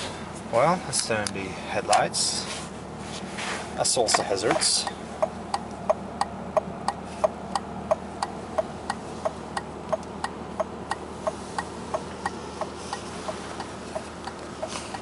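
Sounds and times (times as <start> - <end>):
car engine idling: 0.0 - 15.0
flasher relay ticking: 4.8 - 15.0.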